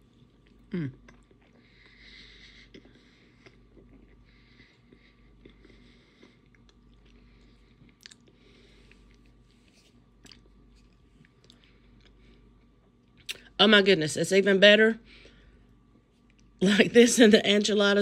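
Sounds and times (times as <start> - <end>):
faint chewing: 0.0 - 13.4, 16.0 - 16.6.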